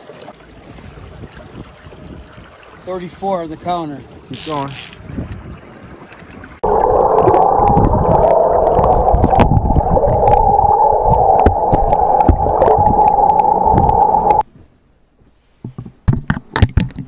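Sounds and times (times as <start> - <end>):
boat motor drone underwater: 6.4 - 14.4
low rushing rumble: 6.6 - 14.4.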